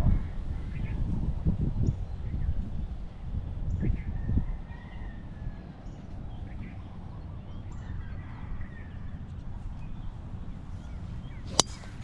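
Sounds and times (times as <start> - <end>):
low steady rumble: 5.1 - 12.0
golf club striking ball: 11.5 - 12.0.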